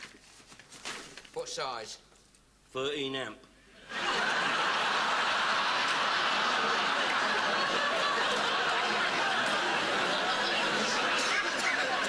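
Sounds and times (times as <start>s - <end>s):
studio audience laughing: 3.8s - 12.0s.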